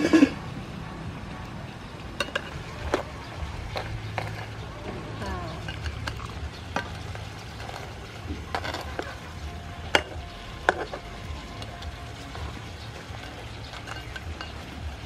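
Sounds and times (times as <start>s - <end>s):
low sizzle: 0.0s - 15.0s
metal spatula scraping a pan: 3.7s - 4.6s, 5.6s - 11.8s, 12.9s - 14.6s.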